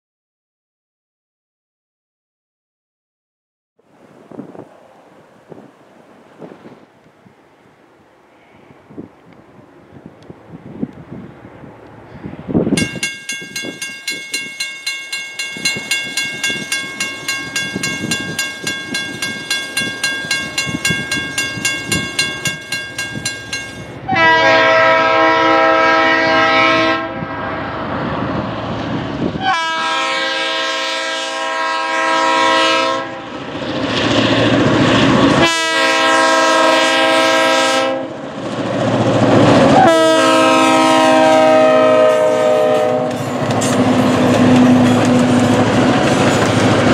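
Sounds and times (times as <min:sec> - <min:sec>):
railroad crossing bell ringing: 0:12.8 - 0:24.3, 0:42.3 - 0:46.9
locomotive horn blasts: 0:24.0 - 0:27.4, 0:29.4 - 0:33.4, 0:35.4 - 0:38.2, 0:39.8 - 0:43.4.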